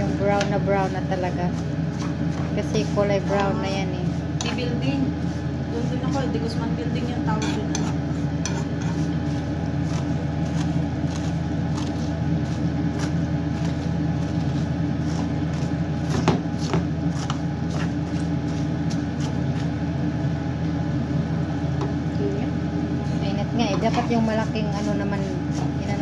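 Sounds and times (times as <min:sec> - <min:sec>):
noodles frying in oil: 0:00.0 - 0:23.6
steady low hum: 0:00.0 - 0:26.0
spatula scraping pan: 0:00.3 - 0:19.7.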